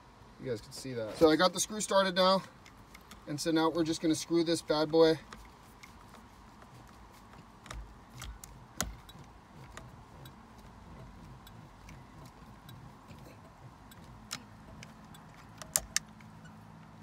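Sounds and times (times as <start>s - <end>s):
screwdriver clicks and ticks: 7.4s - 12.9s, 13.9s - 17.0s.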